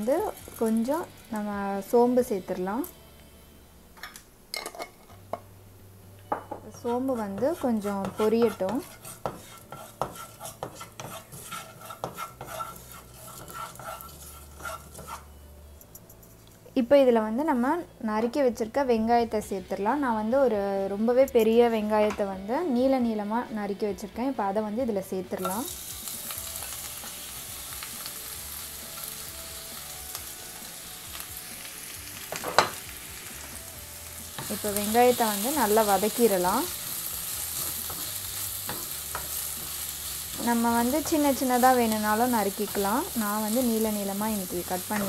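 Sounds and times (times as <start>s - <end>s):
seeds sizzling in oil: 0.0s - 3.0s, 6.7s - 15.3s, 25.4s - 45.0s
spatula scraping a pan: 6.7s - 15.4s, 34.2s - 45.0s.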